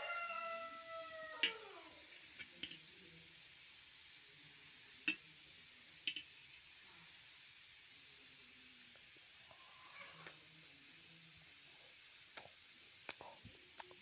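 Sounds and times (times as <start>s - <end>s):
faint taps on metal plate: 2.4s - 2.8s, 5.0s - 5.2s, 6.0s - 6.3s.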